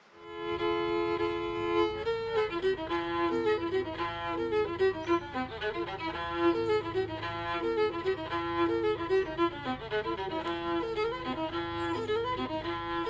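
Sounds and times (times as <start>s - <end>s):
fiddle tune: 0.0s - 13.0s
low accompaniment: 0.1s - 13.0s.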